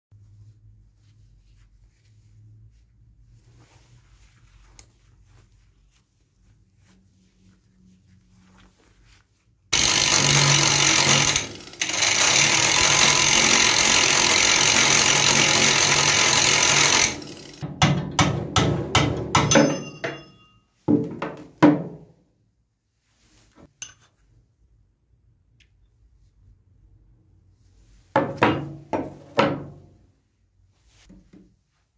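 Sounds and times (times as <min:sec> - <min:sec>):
angle grinder grinding steel: 0:09.8 - 0:17.6.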